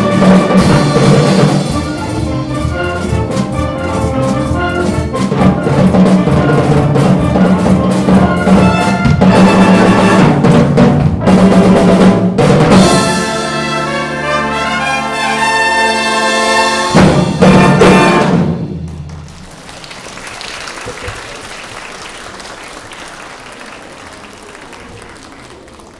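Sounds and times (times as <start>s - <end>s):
steady drum beat: 0.0s - 13.5s, 16.8s - 19.5s
brass band playing: 0.0s - 21.2s.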